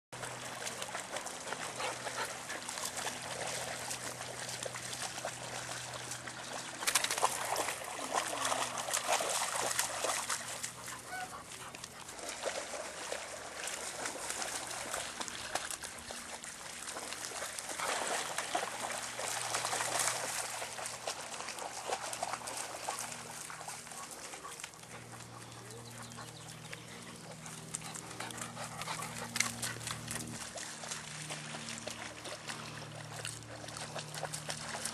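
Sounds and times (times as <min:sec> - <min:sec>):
dogs splashing through water: 0:00.2 - 0:34.9
dog sounds: 0:00.8 - 0:03.2, 0:10.6 - 0:12.2, 0:22.9 - 0:30.5.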